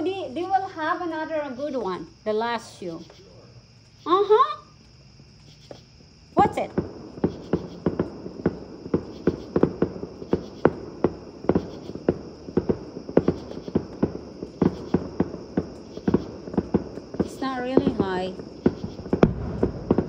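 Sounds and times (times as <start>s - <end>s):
fireworks banging: 6.4s - 20.0s.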